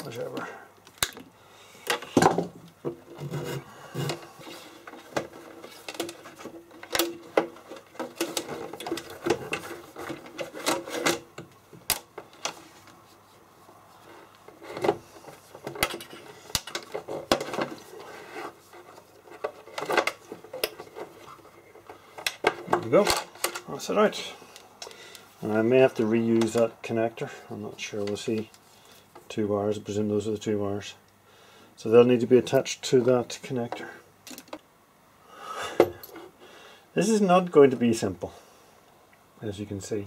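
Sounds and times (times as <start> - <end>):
cable rubbing against metal case: 3.0 - 11.3.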